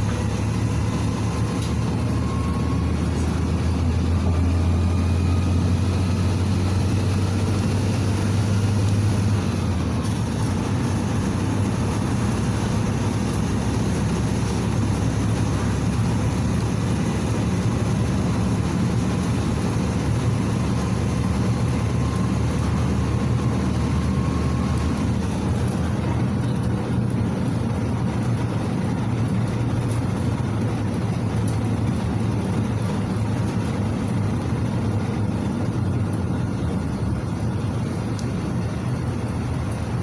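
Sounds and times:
bus diesel engine running: 0:00.0 - 0:40.0
road and tyre noise: 0:00.0 - 0:40.0.

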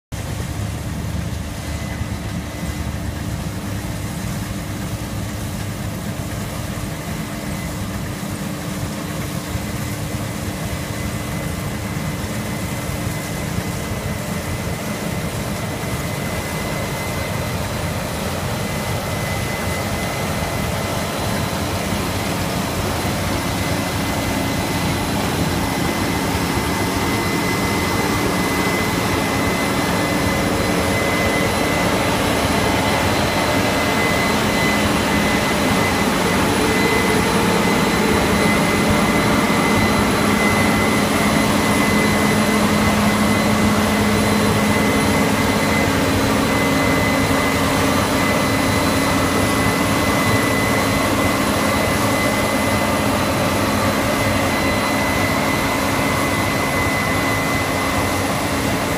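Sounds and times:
combine harvester running: 0:00.1 - 0:58.9
constant high whine: 0:00.1 - 0:58.9.

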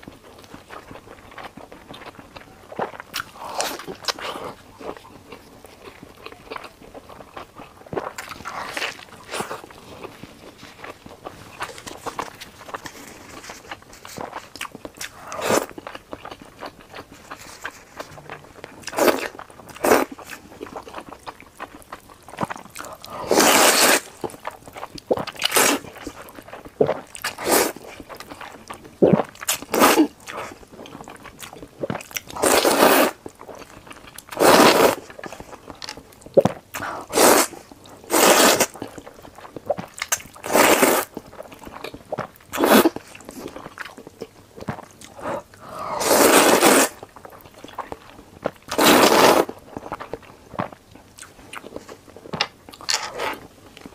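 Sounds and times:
mouth and chewing sounds: 0:00.0 - 0:53.9
slurping noodles: 0:23.0 - 0:24.2, 0:26.8 - 0:27.8, 0:32.4 - 0:33.2, 0:34.3 - 0:35.1, 0:36.8 - 0:38.8, 0:40.4 - 0:41.1, 0:45.1 - 0:47.0, 0:48.7 - 0:49.6.

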